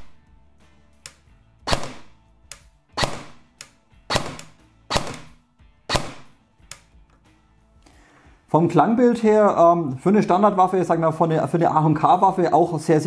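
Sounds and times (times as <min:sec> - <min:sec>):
airsoft gun shots: 0:01.7 - 0:02.2, 0:03.0 - 0:03.5, 0:04.1 - 0:06.4.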